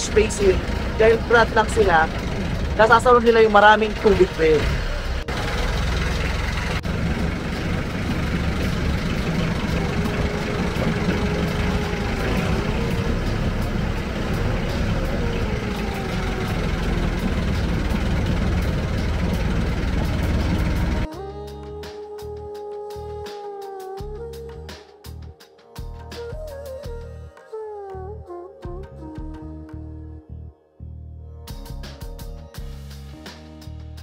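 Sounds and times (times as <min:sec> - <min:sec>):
boat engine running: 0:00.0 - 0:21.1
rushing noise: 0:00.0 - 0:21.1.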